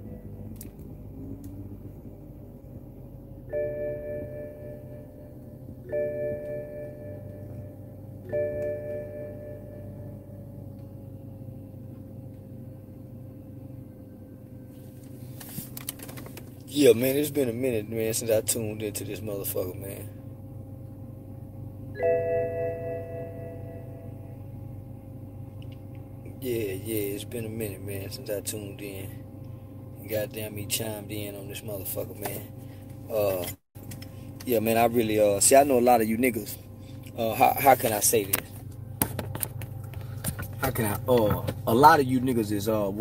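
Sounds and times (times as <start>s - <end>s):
low steady hum: 0.0s - 43.0s
electronic bell-like chime: 3.5s - 10.6s, 21.9s - 24.4s.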